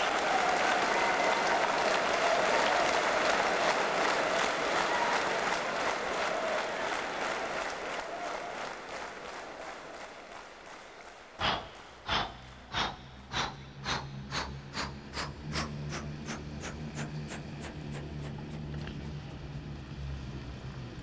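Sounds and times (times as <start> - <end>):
steam locomotive chuffing: 11.0 - 21.0
low steady rumble: 11.4 - 21.0.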